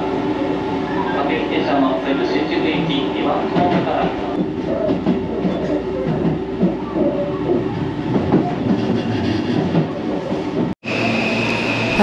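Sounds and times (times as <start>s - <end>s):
train wheels on rails: 2.7s - 12.0s.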